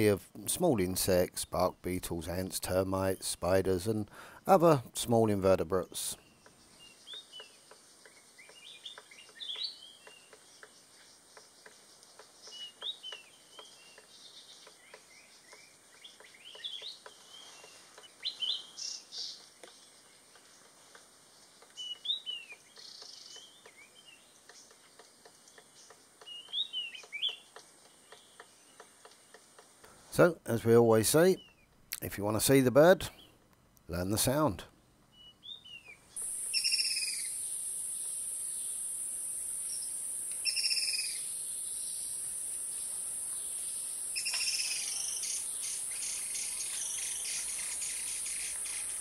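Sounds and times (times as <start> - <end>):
small bird high chirps: 6.2 - 20.1, 21.7 - 28.9, 35.1 - 39.0, 39.6 - 49.0
bird pecking bamboo: 6.4 - 30.1.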